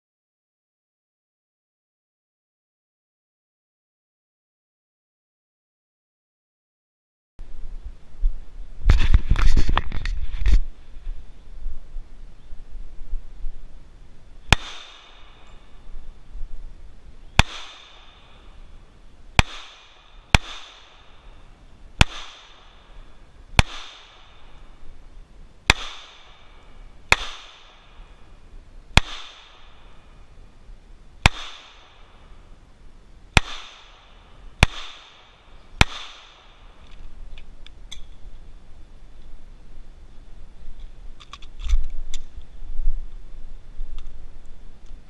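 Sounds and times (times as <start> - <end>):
pistol shots: 14.5 - 15.6, 17.4 - 18.4, 19.4 - 21.1, 22.0 - 22.9, 23.6 - 24.5, 25.7 - 26.5, 27.1 - 28.0, 29.0 - 29.8, 31.2 - 32.2, 33.4 - 36.8
metallic pistol clicks: 36.8 - 38.2.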